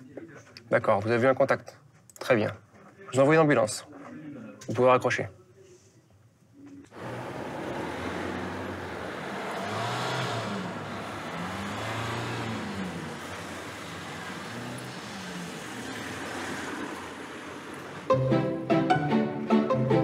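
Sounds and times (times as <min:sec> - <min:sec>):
vehicle engines passing: 0:06.9 - 0:18.1
road noise: 0:06.9 - 0:18.5.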